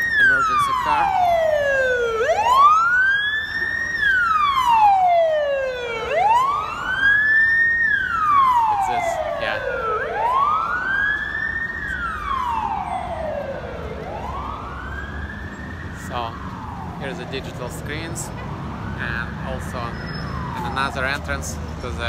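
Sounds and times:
emergency vehicle siren wailing: 0.0s - 22.0s
street traffic rumble: 0.0s - 22.0s.

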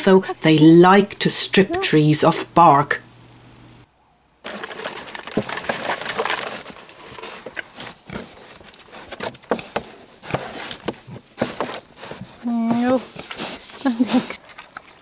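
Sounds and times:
pigs rooting through wood chips: 4.4s - 15.0s.

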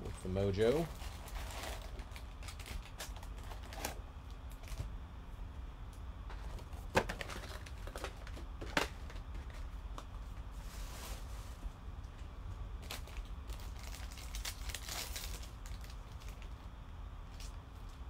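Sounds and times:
foil packs crinkling: 0.5s - 4.9s, 6.3s - 11.7s, 12.8s - 16.7s.

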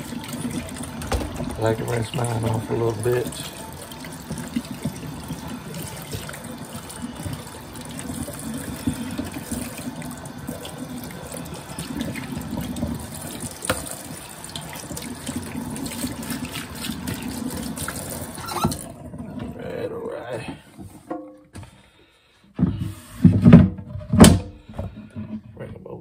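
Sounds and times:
water splashing: 0.0s - 19.0s
faucet running into sink: 0.0s - 20.6s.

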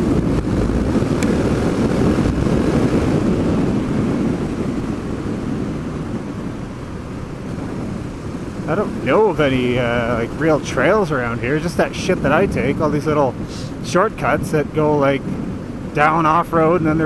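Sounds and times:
motorcycle engine running: 0.0s - 11.7s
wind rush on microphone: 0.0s - 17.0s.

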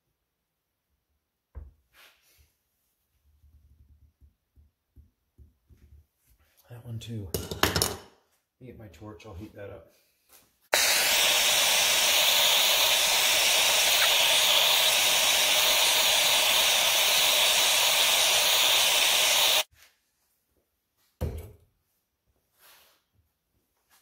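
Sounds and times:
gas torch hissing: 10.7s - 19.7s.

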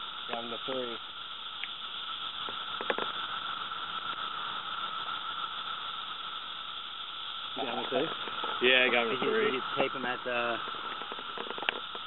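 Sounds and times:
cicadas droning: 0.0s - 12.0s.

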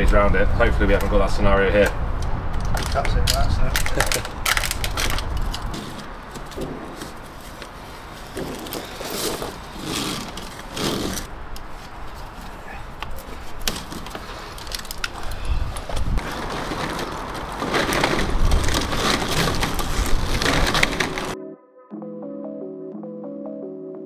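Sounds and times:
plastic duct clattering: 2.8s - 7.3s, 16.2s - 21.4s.

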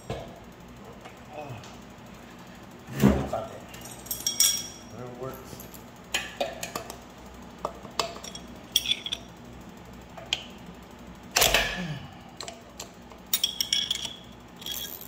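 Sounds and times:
wrenches clinking on bolts: 13.3s - 15.0s.

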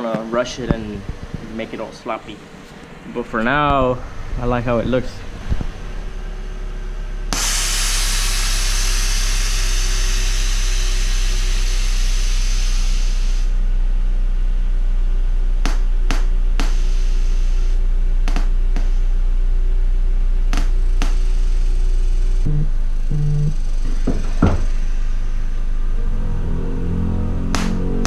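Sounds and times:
steady low rumble: 0.0s - 28.0s
air suspension hissing: 23.6s - 26.3s.

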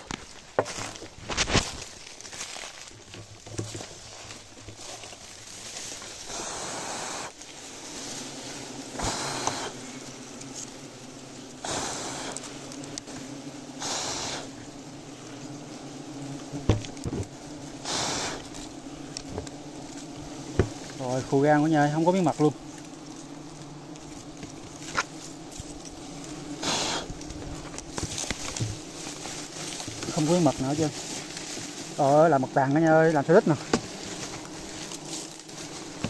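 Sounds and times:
honeybees buzzing: 0.0s - 36.0s
short hissing rushes: 6.2s - 8.0s, 8.9s - 10.0s, 11.6s - 12.5s, 13.8s - 14.6s, 17.8s - 18.5s, 26.6s - 27.2s.

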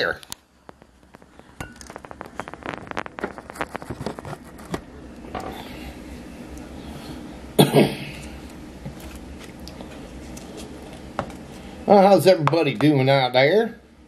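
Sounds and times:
man coughing: 7.6s - 8.2s.

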